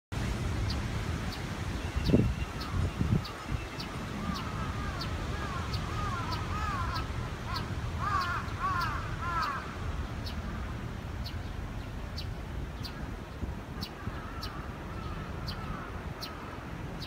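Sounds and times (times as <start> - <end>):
short arching bird calls: 1.9 - 10.6.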